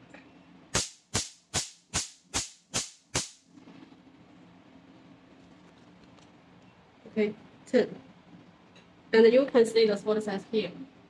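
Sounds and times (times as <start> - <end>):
laser pulse snaps: 0.7 - 3.4.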